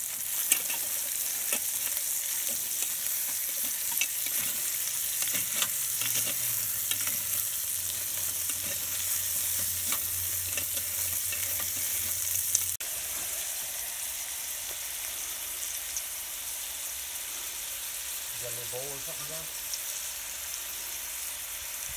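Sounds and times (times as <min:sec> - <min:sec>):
food sizzling in a pot: 0:00.0 - 0:21.9
spatula scraping a pot: 0:00.2 - 0:12.2.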